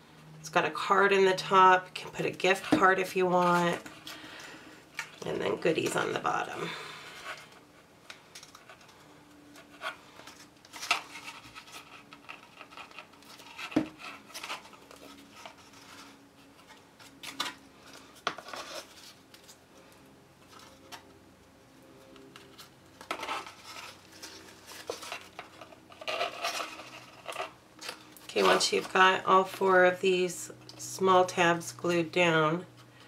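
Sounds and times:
cardstock rustling and scraping: 0:01.4 - 0:04.4, 0:07.1 - 0:19.6, 0:22.2 - 0:30.0.

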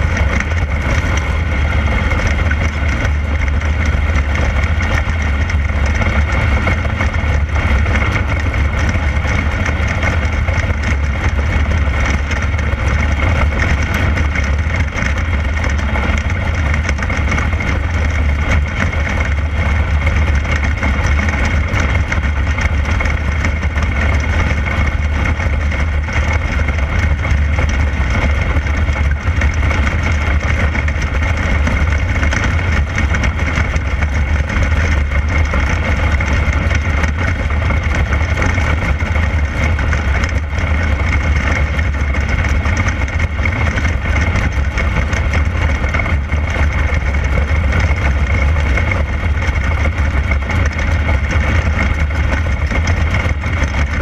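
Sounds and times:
race car engine droning: 0:00.0 - 0:54.0.

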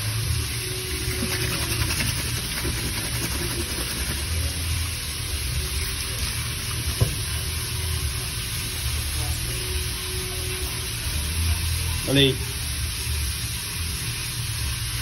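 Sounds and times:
tap water running into sink: 0:00.8 - 0:04.5, 0:05.7 - 0:07.5.

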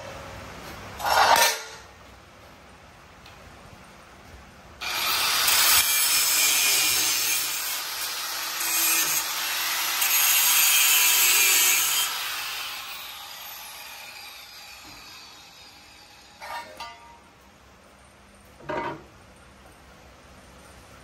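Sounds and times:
cut-off wheel grinding steel: 0:04.8 - 0:16.9.

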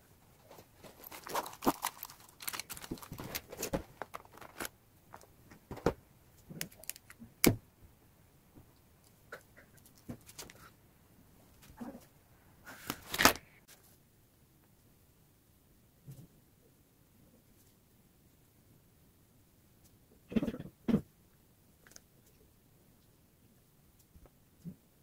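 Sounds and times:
pens and paper handled on table: 0:00.3 - 0:07.2.

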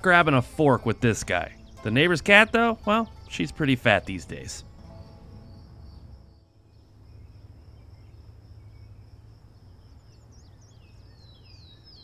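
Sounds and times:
low rumble: 0:04.6 - 0:10.7
high insect buzz: 0:04.6 - 0:11.1.

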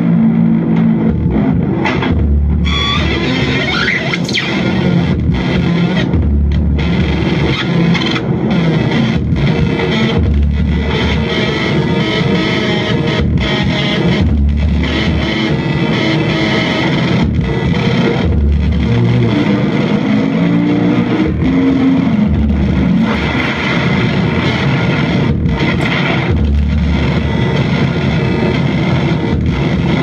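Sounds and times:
distorted electric guitar music: 0:00.0 - 0:30.0
deep low note: 0:00.4 - 0:07.6, 0:12.2 - 0:15.6, 0:17.1 - 0:30.0.

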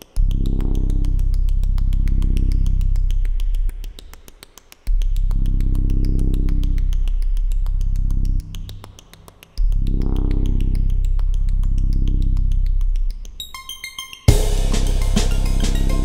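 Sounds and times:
fast ticking pulse: 0:14.3 - 0:16.0
synthesizer bass drone: 0:14.3 - 0:16.0.

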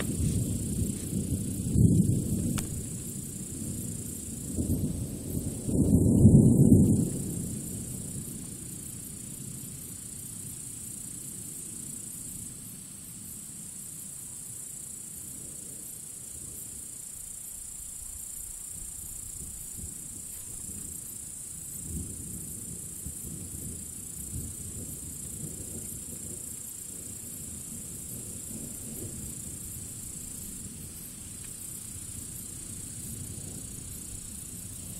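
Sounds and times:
thunderclap: 0:00.0 - 0:08.3
distant thunder rumbling: 0:00.0 - 0:09.1, 0:21.7 - 0:34.9
high-pitched hiss: 0:00.0 - 0:34.9.

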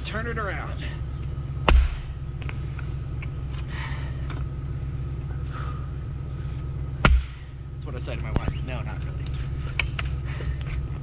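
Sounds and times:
steady low rumble: 0:00.0 - 0:11.0
axe splitting wood: 0:01.6 - 0:02.1, 0:07.0 - 0:07.4.

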